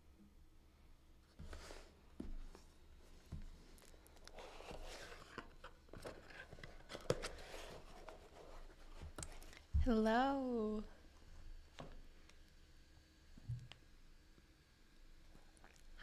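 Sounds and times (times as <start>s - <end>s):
cardboard box rustling: 4.4s - 9.0s.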